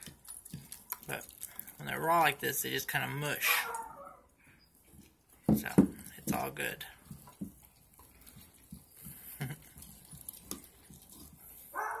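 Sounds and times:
puppy gnawing bone: 0:00.0 - 0:02.4, 0:05.6 - 0:12.0.

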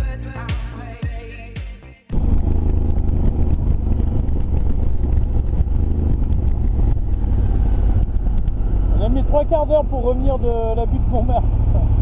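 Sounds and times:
wind rumble on microphone: 0:02.1 - 0:09.0
motorcycle engine running: 0:02.1 - 0:12.0.

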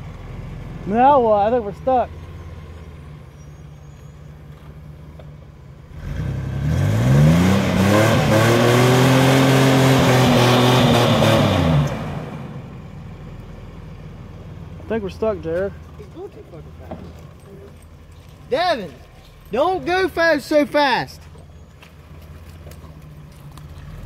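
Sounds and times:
pickup truck engine revving: 0:05.8 - 0:15.9
wheels spinning in mud: 0:15.1 - 0:24.0.

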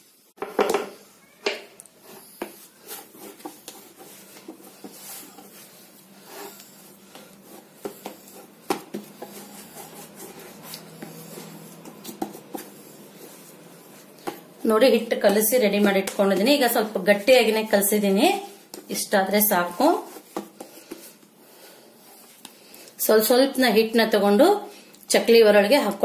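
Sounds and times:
hand kneading dough: 0:00.0 - 0:26.0.

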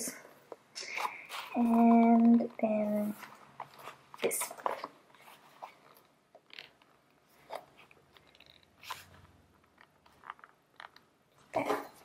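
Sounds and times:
leather rubbing: 0:05.1 - 0:11.0.

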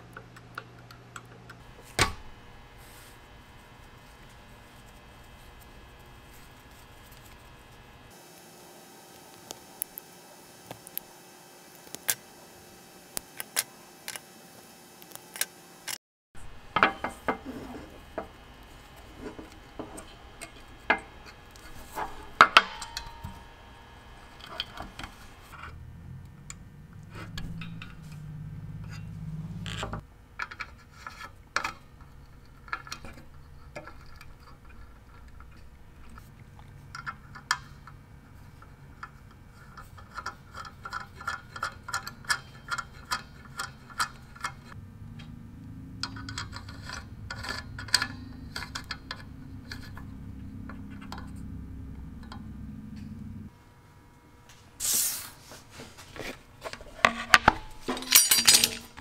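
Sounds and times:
low rubbing rumble: 0:25.1 - 0:30.1, 0:44.7 - 0:53.5.

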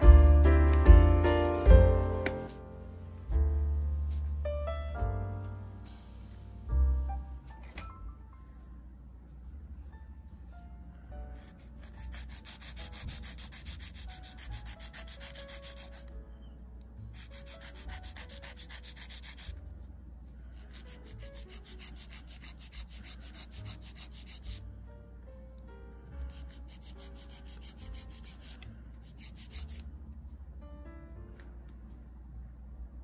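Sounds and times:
nail file rasping on plastic: 0:11.7 - 0:16.1, 0:17.2 - 0:19.6, 0:20.6 - 0:24.6, 0:26.3 - 0:29.8.

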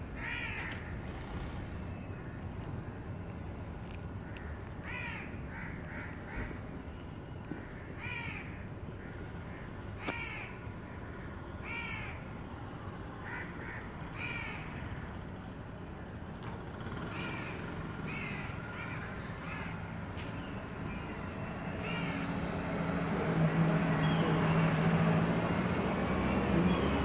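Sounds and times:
crows cawing: 0:00.2 - 0:01.0, 0:04.2 - 0:06.6, 0:07.6 - 0:12.2, 0:13.2 - 0:15.0, 0:17.1 - 0:19.8, 0:21.8 - 0:22.3.

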